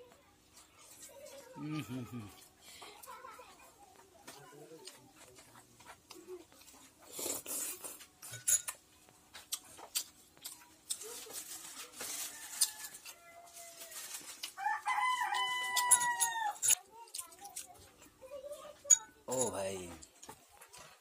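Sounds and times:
slurping from a spoon: 7.0s - 8.4s
rooster crowing: 12.0s - 14.0s, 14.6s - 16.8s.

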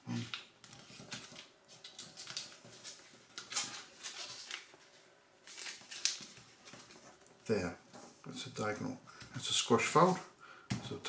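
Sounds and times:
paper rustling and crinkling: 0.1s - 8.2s.

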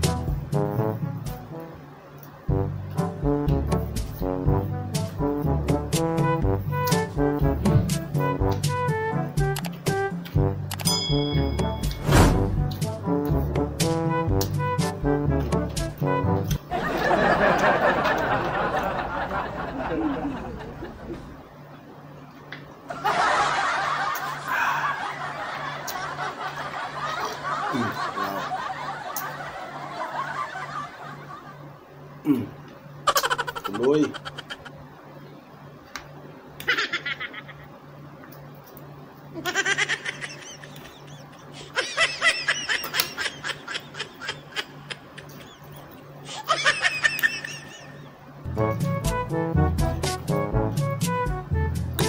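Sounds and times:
canned laughter: 22.9s - 31.6s, 33.1s - 34.8s, 36.6s - 37.8s, 39.4s - 48.2s.

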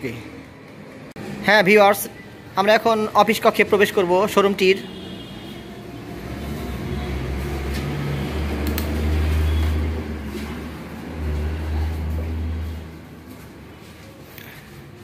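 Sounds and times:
footsteps on tiled floor: 6.3s - 15.0s.

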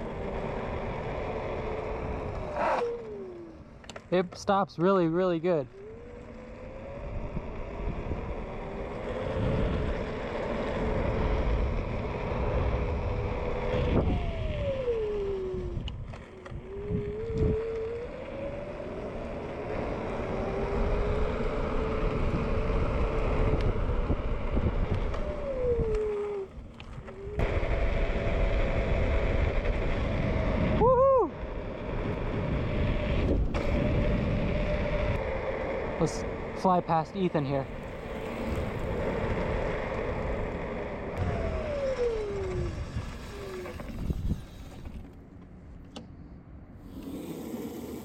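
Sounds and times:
electric scooter motor whining: 0.0s - 48.0s
wind noise: 5.8s - 18.8s, 19.8s - 45.2s.

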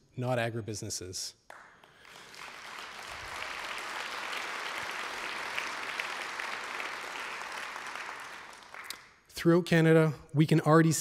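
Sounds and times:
audience applauding: 1.5s - 9.1s.

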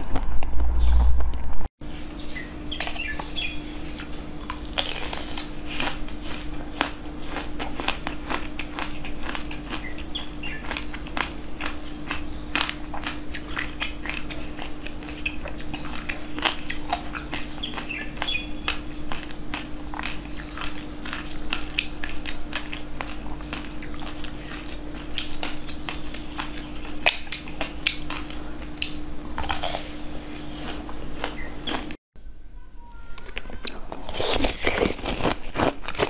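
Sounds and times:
steady low hum: 0.0s - 36.0s
chewing and mouth clicks: 2.7s - 32.0s
crackling bites into ice cream: 3.9s - 30.0s, 33.2s - 36.0s.

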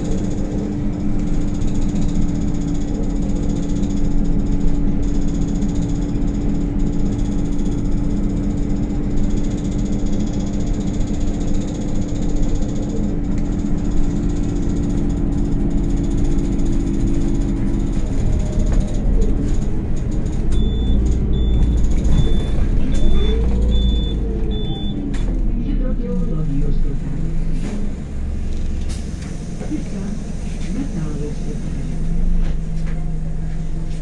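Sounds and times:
bus engine and drivetrain noise: 0.0s - 34.0s
high beep: 20.6s - 25.0s.

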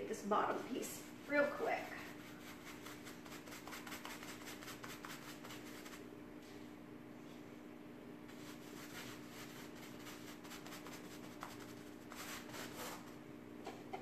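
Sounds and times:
paintbrush strokes on fabric: 1.0s - 6.6s, 8.3s - 13.0s.

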